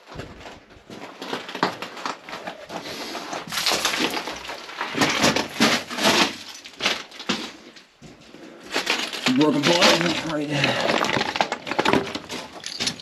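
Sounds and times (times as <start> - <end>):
stones clattering: 3.5 - 7.2, 9.0 - 13.0.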